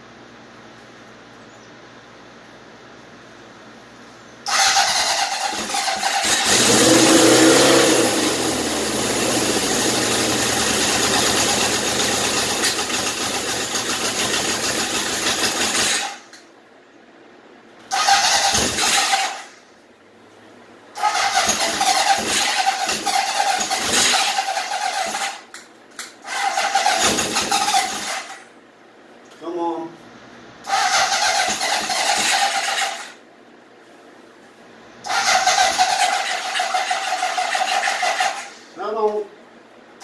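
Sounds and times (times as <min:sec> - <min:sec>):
motorcycle starter cranking engine: 0:04.5 - 0:16.3, 0:17.9 - 0:19.6, 0:21.0 - 0:28.5, 0:30.7 - 0:33.2, 0:35.0 - 0:38.6.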